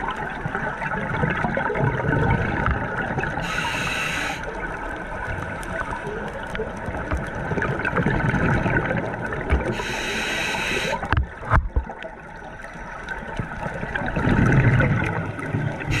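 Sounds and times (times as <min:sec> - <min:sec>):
exhaled bubbles gurgling: 0:00.0 - 0:16.0
regulator hissing inhale: 0:03.4 - 0:04.6, 0:09.7 - 0:11.1.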